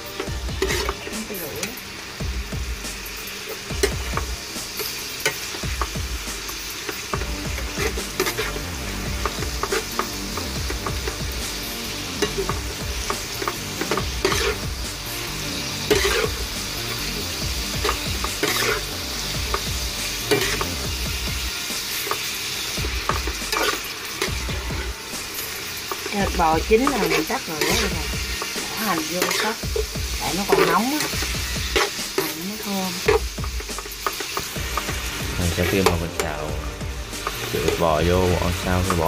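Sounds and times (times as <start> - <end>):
oil sizzling: 0.0 - 39.0
metal spatula scraping pan: 7.8 - 8.6, 13.4 - 14.6, 15.9 - 16.4, 17.8 - 18.8, 23.0 - 29.6.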